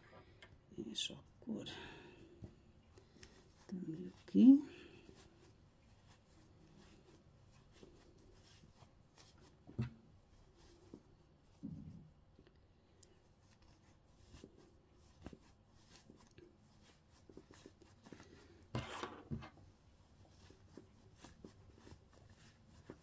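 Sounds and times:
fingers rustling toy stuffing: 13.4 - 23.0.

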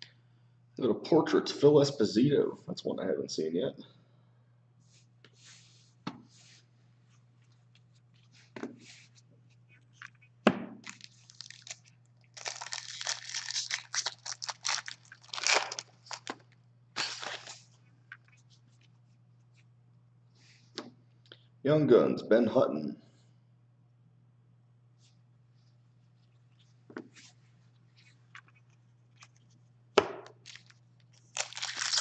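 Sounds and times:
foil wrappers crinkling and tearing: 10.8 - 17.7, 30.4 - 32.0.

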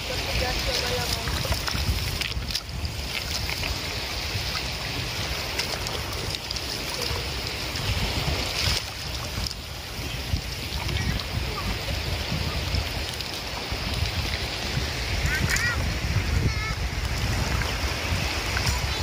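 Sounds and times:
net splashing through water: 0.0 - 14.8
rushing shallow water: 0.0 - 19.0
wind buffeting microphone: 0.0 - 19.0.

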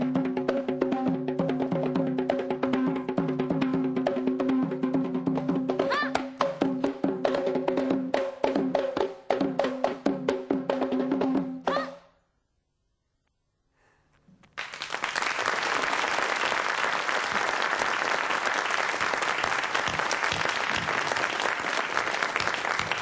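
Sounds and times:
studio audience applause: 14.6 - 23.0.

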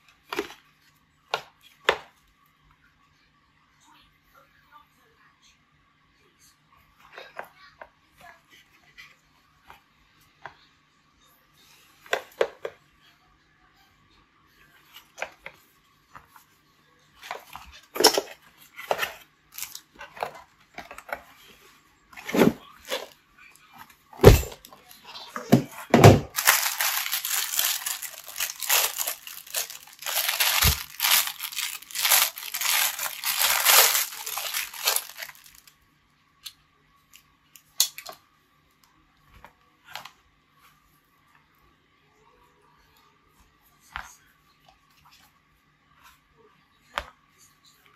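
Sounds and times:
plastic packaging crinkling: 18.9 - 19.9, 26.0 - 35.7.

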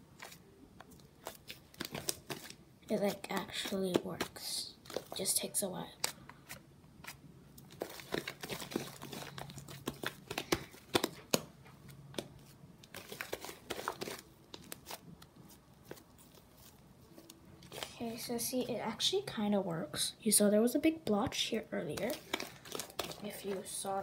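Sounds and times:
sticky slime crackles and pops: 0.2 - 6.2, 21.0 - 24.0.

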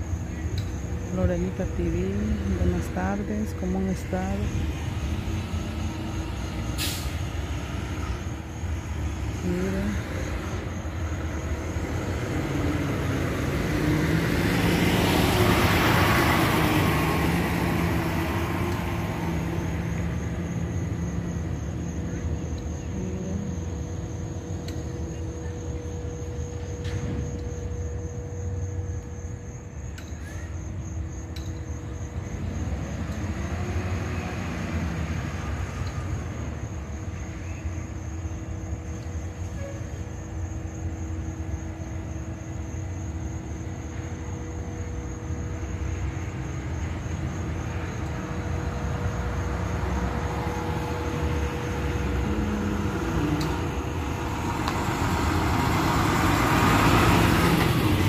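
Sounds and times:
truck diesel engine rumbling: 43.7 - 58.0.

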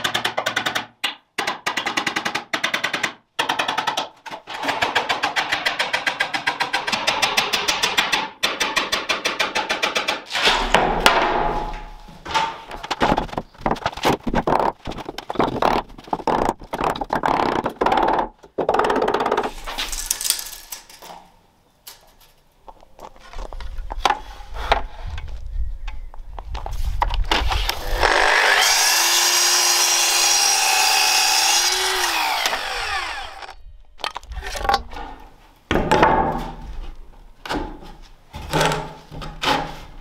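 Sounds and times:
hammer driving nails into wood: 0.0 - 11.8
power tool motor humming: 27.8 - 33.6.

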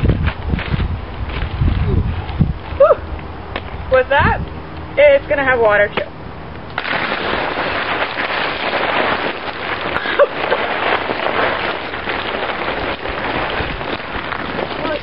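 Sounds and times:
water pouring and splashing: 6.7 - 15.0.

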